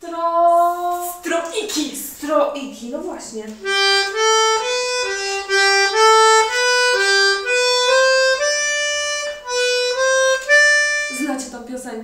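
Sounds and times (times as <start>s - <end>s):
accordion playing simple tune: 3.6s - 11.5s.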